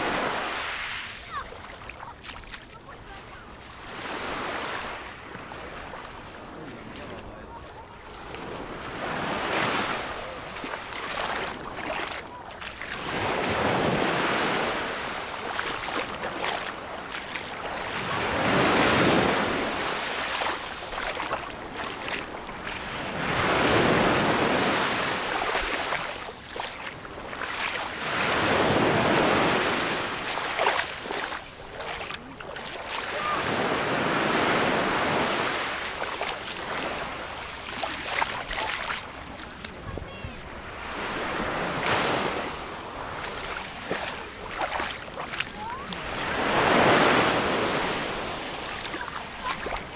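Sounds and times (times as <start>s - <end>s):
small waves breaking on shingle: 9.4s - 40.5s, 41.5s - 49.9s.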